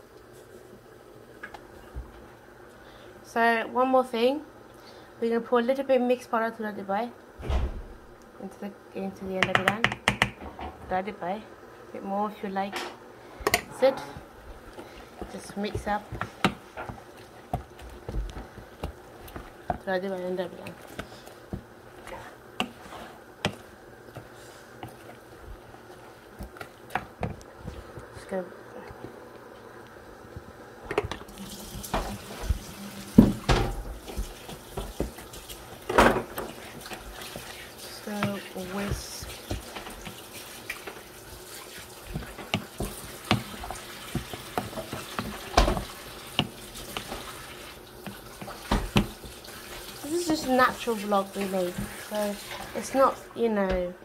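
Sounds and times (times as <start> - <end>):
faint steady background noise: 0.0 - 54.0
steady cooking hiss: 0.0 - 54.0
spoon knocking against pot: 9.4 - 10.4.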